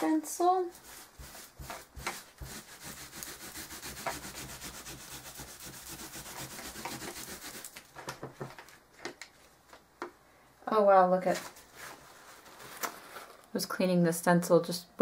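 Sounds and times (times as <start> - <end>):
wipe scrubbing on paper towel: 0.7 - 7.7.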